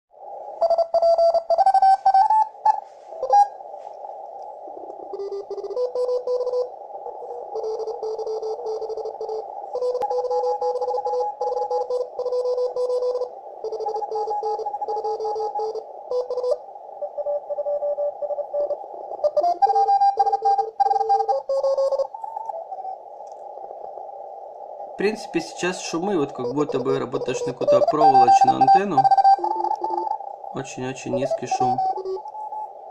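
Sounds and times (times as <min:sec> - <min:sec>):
radio hiss: 0:00.1 - 0:32.9
morse code beeping: 0:00.6 - 0:03.5, 0:05.2 - 0:06.7, 0:07.6 - 0:16.6, 0:17.2 - 0:22.1, 0:25.8 - 0:32.6.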